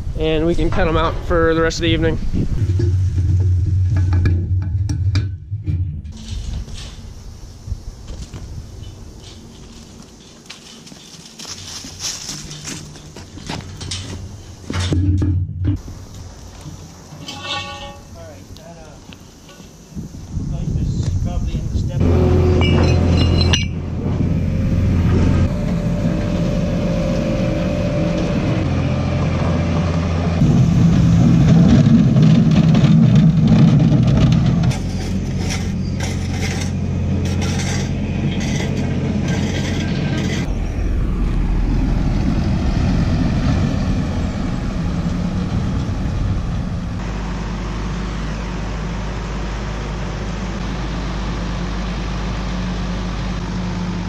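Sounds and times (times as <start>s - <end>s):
farm machine engines running: 8.1s - 15.0s, 21.3s - 54.0s.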